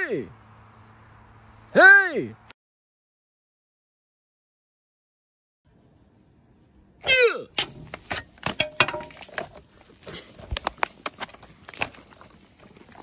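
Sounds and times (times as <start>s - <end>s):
drink can clattering on wood: 8.0s - 9.7s.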